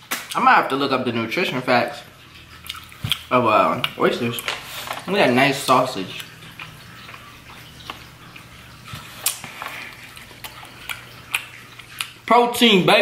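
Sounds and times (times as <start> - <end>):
wet chewing: 2.2 - 12.3.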